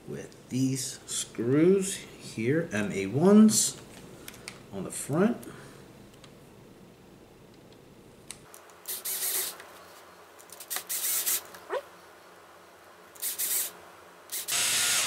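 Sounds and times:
cordless screwdriver running: 0:14.3 - 0:15.0.

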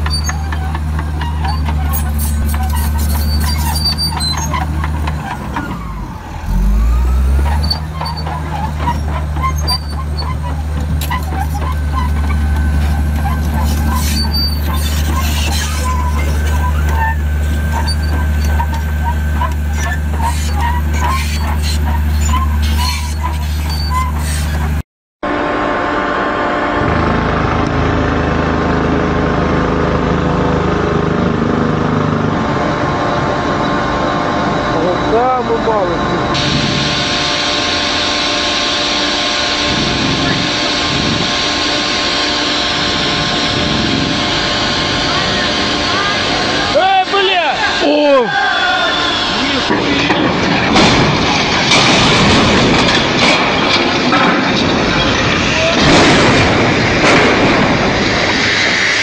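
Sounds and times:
steel tracks clanking: 0:00.0 - 0:24.8, 0:32.4 - 0:59.0
bulldozer diesel engine running: 0:00.0 - 0:59.0
gliding whine: 0:01.3 - 0:24.7.

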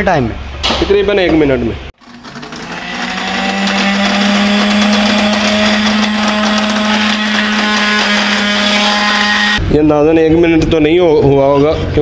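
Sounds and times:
electric grinder motor hum: 0:02.0 - 0:09.6.

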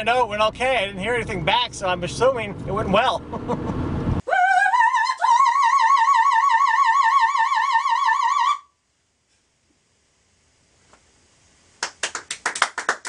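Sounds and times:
female opera singer: 0:04.3 - 0:08.6.

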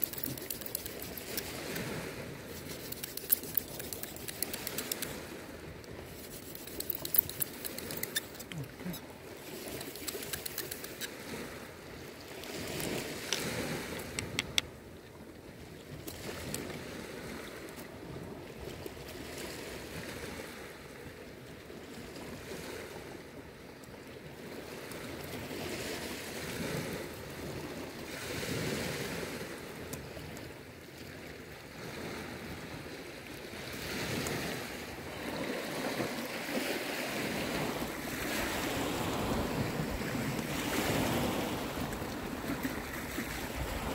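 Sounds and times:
sharp ticks: 0:00.0 - 0:01.9, 0:02.5 - 0:05.2, 0:06.1 - 0:08.7, 0:09.6 - 0:11.2, 0:14.0 - 0:14.7
waves on a pebble beach: 0:00.0 - 0:43.9
wind: 0:00.0 - 0:43.9.

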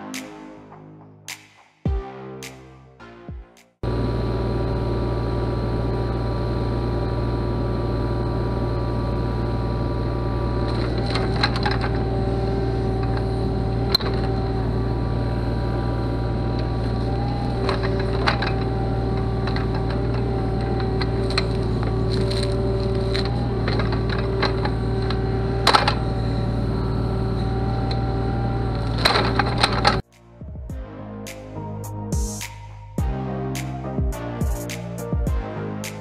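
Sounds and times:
excavator engine and hydraulics: 0:03.8 - 0:30.3
hydraulic whine: 0:03.8 - 0:30.6
roots cracking and snapping: 0:16.6 - 0:26.0.

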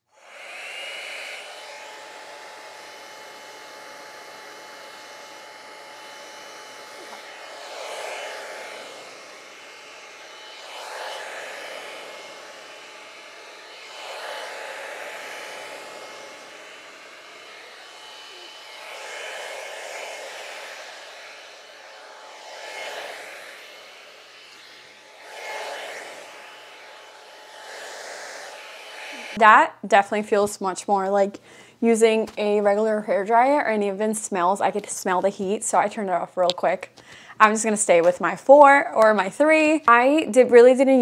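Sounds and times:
hot-air brush whining and blowing: 0:00.0 - 0:29.6.

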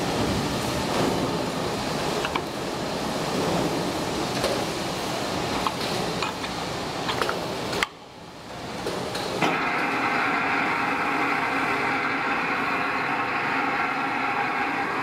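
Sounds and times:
clicking and handling noise: 0:05.6 - 0:08.0.

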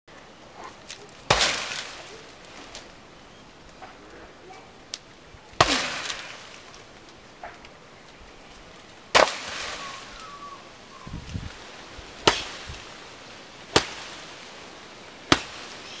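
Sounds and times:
hard hits on tree trunk: 0:01.3 - 0:02.1, 0:05.6 - 0:06.6, 0:09.1 - 0:09.8, 0:12.2 - 0:12.9, 0:13.7 - 0:14.3, 0:15.2 - 0:15.8.

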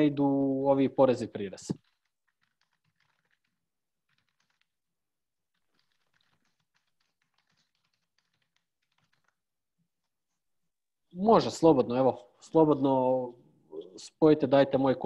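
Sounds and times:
typing on a keyboard: 0:01.7 - 0:04.7, 0:05.5 - 0:09.4.

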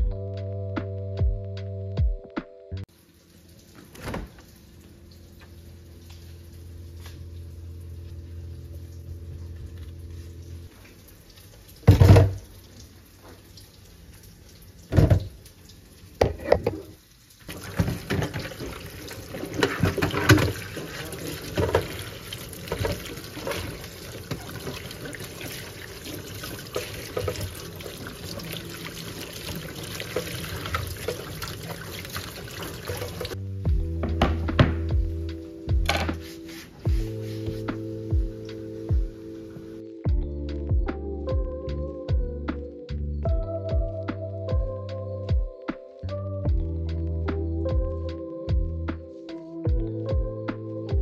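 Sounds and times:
steady low hum: 0:04.6 - 0:10.8
tap running into steel sink: 0:16.2 - 0:16.9.

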